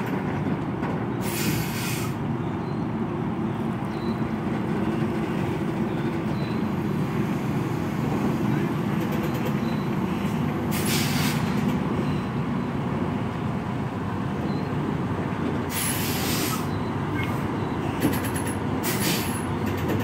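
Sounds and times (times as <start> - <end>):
diesel truck engine rumbling: 0.0 - 20.0
air brake hissing: 1.2 - 2.2, 10.7 - 11.6, 15.7 - 17.4, 18.8 - 19.4.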